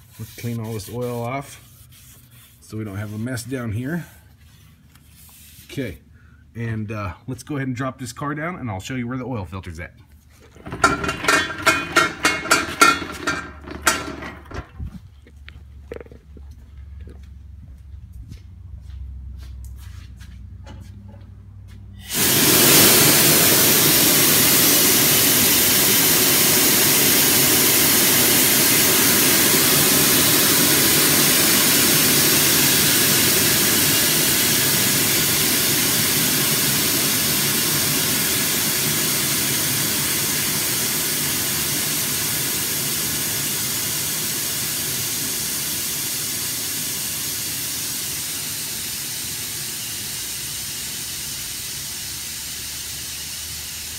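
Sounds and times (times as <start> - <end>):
car lift hissing: 10.6 - 14.6, 22.0 - 53.9.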